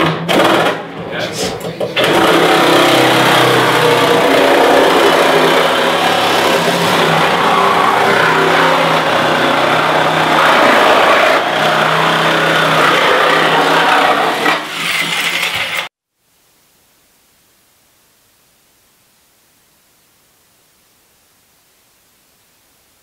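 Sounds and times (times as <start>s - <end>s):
reciprocating saw cutting metal: 2.0s - 15.9s.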